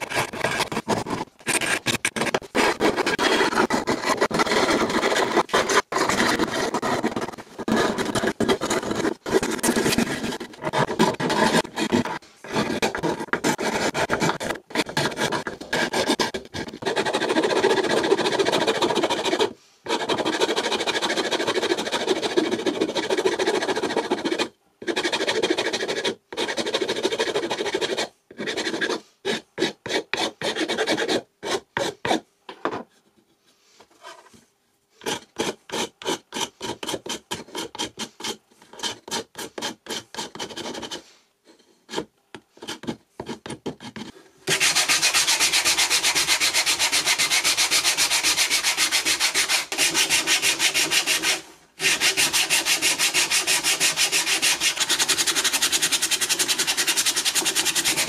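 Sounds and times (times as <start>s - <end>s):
metal file rasping on wood: 0.0s - 32.2s, 35.0s - 41.0s, 41.9s - 58.0s
sandpaper scrubbing wood: 44.5s - 58.0s.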